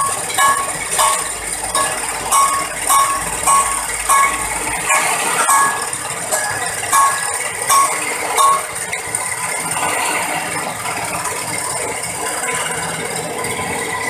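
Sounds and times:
sharp metallic clink: 0.0 - 8.9.

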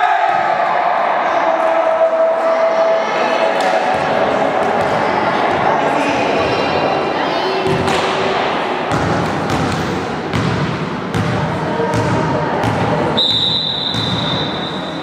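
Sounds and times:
referee's whistle blast: 13.2 - 15.0.

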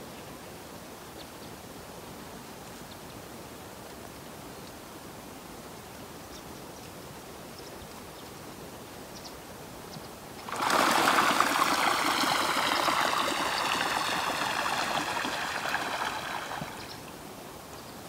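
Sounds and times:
water pouring: 10.4 - 17.1.

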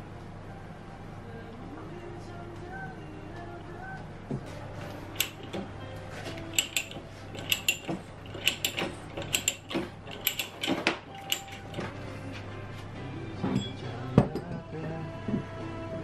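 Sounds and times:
metallic ratchet clicks: 5.2 - 5.6, 6.5 - 11.8.

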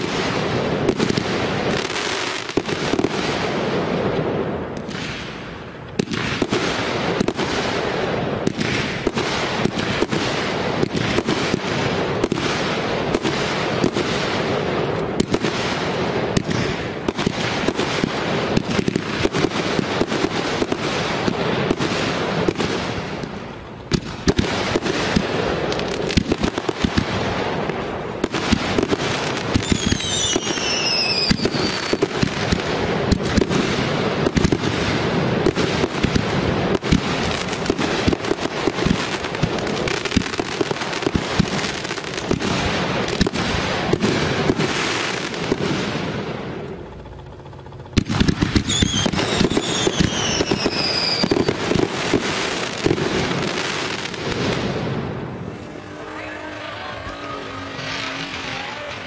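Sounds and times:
fireworks bangs and crackling: 0.0 - 59.0
falling firework whistle: 28.2 - 32.3, 48.2 - 52.2, 52.8 - 59.0.

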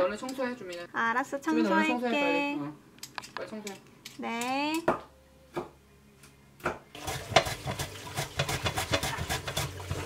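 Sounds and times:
hands washing vegetables in metal bowl: 7.0 - 10.0
running kitchen tap: 7.0 - 10.0.

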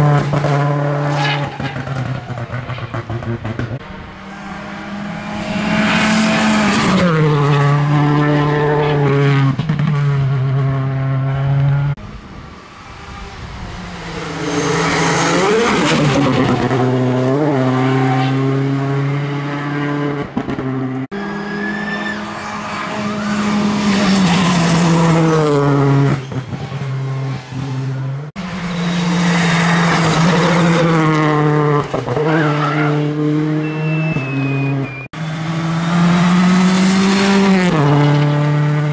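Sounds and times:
rally car engine passing: 0.0 - 38.9
tyre squeal: 14.4 - 16.3, 21.2 - 24.5, 32.2 - 35.1.

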